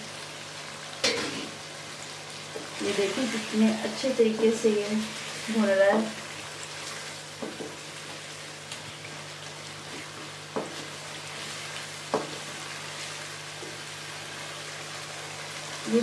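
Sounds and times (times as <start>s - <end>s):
chicken sizzling in a wok: 0.0s - 16.0s.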